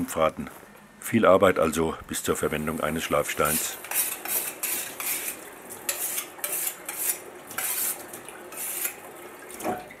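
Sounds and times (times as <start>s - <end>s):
running tap water hiss: 2.3s - 10.0s
blade rasping on whetstone: 3.4s - 9.0s.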